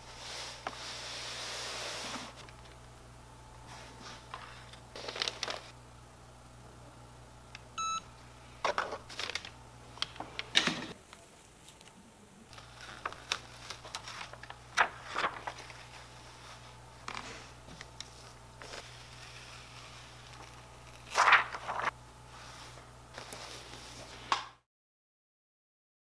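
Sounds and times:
paper sheets rustling and crinkling: 3.6s - 5.8s, 8.6s - 24.3s
heat press beep: 7.8s - 8.1s.

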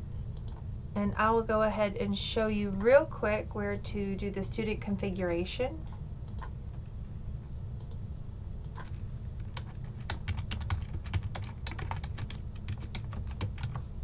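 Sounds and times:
low steady hum: 0.0s - 14.0s
keyboard typing: 6.3s - 6.5s, 8.6s - 13.8s.

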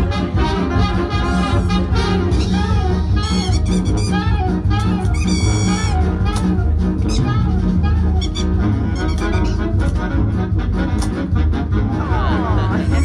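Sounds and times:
jazzy music with horns: 0.0s - 13.0s
pulsing bass beat: 0.0s - 13.0s.

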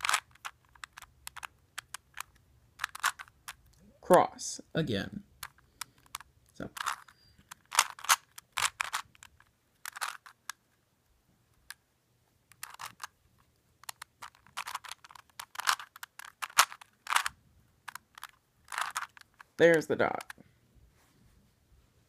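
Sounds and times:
puzzle cube layers clicking: 0.0s - 3.8s, 5.4s - 10.6s, 12.4s - 20.4s.

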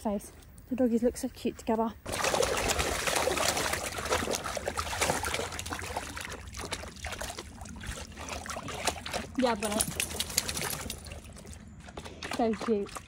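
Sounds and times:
wet grass rustling: 2.0s - 12.6s.

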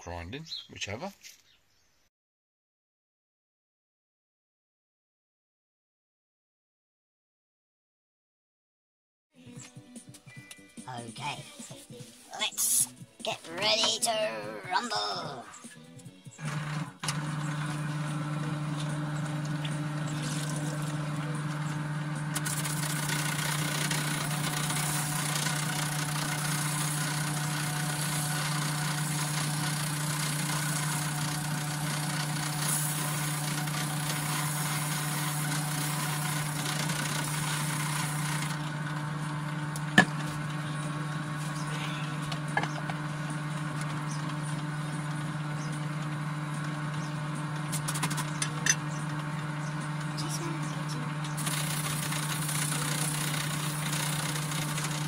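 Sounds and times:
electric drill running: 16.4s - 55.0s
sanding disc hiss: 17.4s - 38.6s, 51.3s - 55.0s.

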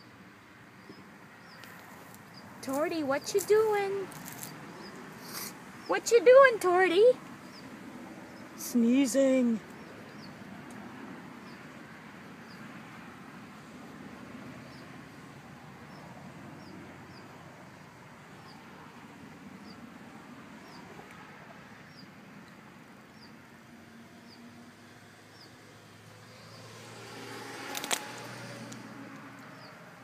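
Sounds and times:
small bird chirping: 4.2s - 6.0s, 7.4s - 10.4s.

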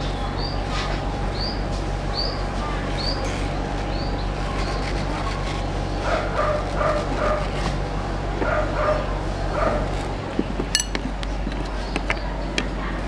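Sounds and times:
steady background hum: 0.0s - 13.0s
dog barking: 6.0s - 7.6s, 8.4s - 10.0s.

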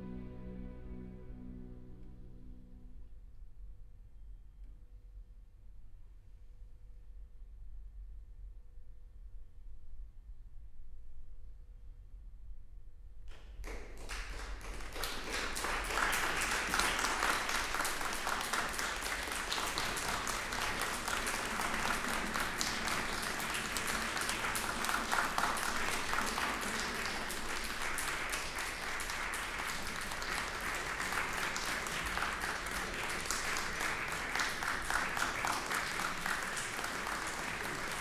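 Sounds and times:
audience applauding: 13.6s - 38.0s.

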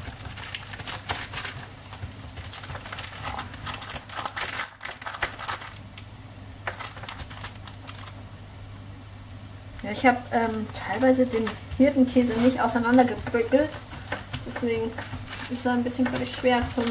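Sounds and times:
dough squishing under hands: 0.0s - 6.0s, 9.8s - 16.9s
baking paper crinkling: 0.0s - 8.2s, 9.8s - 16.9s
low steady hum: 0.0s - 16.9s.

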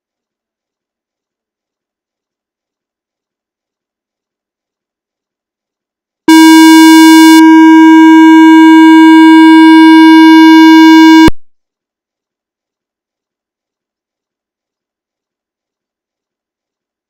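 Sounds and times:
buzzy electronic tone: 6.3s - 11.4s.

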